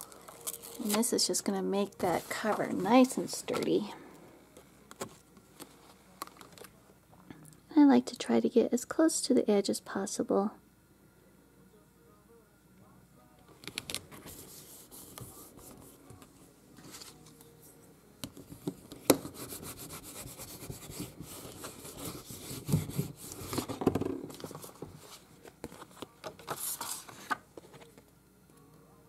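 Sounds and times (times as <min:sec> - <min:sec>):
paper handling: 0:13.6 - 0:17.5, 0:20.4 - 0:28.0
bone folder rubbing paper: 0:14.1 - 0:16.1, 0:19.1 - 0:23.8.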